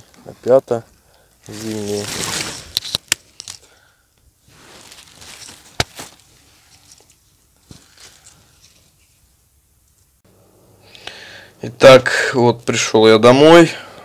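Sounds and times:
twigs snapping: 1.4s - 6.3s
footsteps crunching through leaves: 1.5s - 2.8s, 4.4s - 6.6s.

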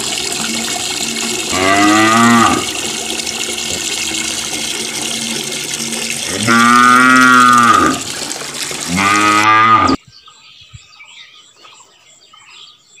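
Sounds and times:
running water hissing: 0.0s - 10.0s
cow mooing: 1.5s - 2.9s, 6.3s - 8.1s, 8.9s - 10.0s.

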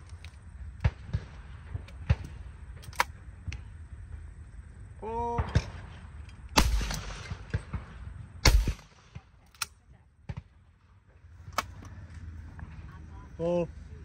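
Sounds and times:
shotgun shot: 6.6s - 9.3s.

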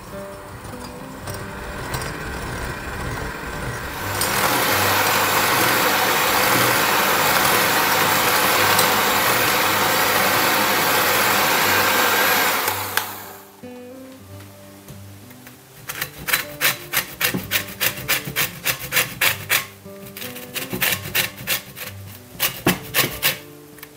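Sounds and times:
electric hand mixer running: 0.7s - 13.6s.

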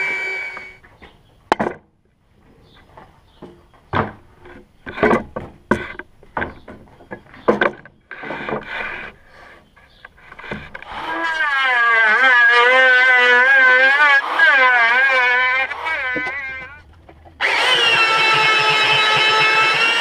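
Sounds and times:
electric hand planer whining: 0.0s - 0.8s, 10.3s - 20.0s
wooden boards clunking: 0.9s - 2.0s, 3.0s - 11.2s.

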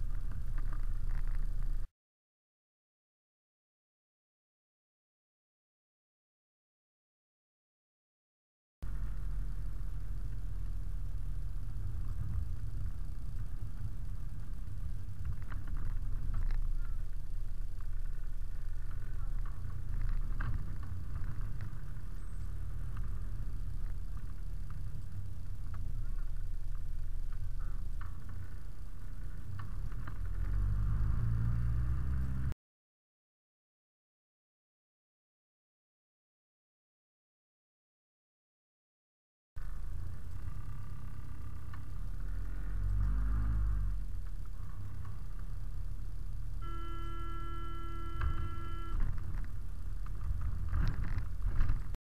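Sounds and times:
truck engine rumble: 0.0s - 1.9s, 8.8s - 32.6s, 39.6s - 52.0s.

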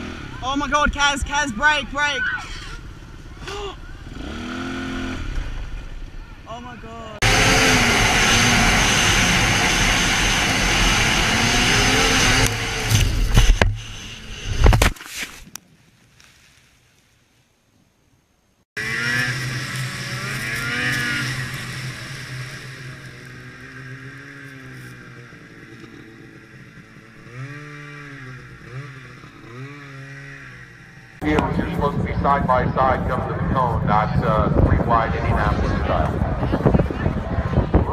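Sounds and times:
snowmobile engine revving: 0.0s - 14.7s, 18.8s - 37.9s
wind noise on helmet: 33.8s - 37.9s.

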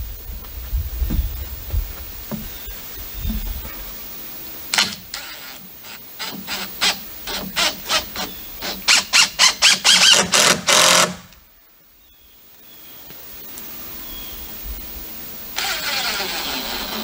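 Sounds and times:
screw squeaking in wood: 4.8s - 11.2s
cordless drill driving screw: 6.2s - 11.3s.

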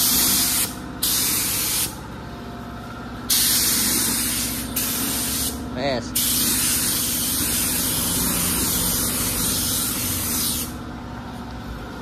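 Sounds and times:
spray gun hissing: 0.0s - 2.0s, 3.3s - 5.6s, 6.2s - 10.8s.

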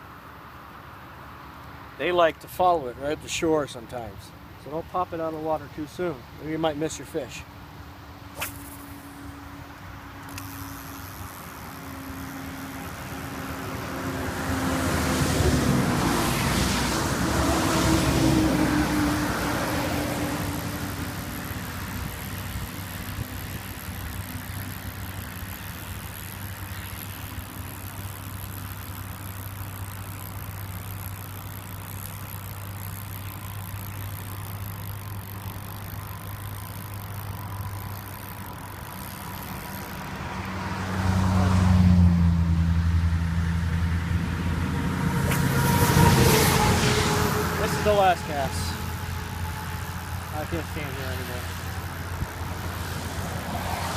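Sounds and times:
steady low hum: 0.0s - 53.9s
vehicle engine passing: 11.0s - 22.8s, 39.2s - 53.9s.

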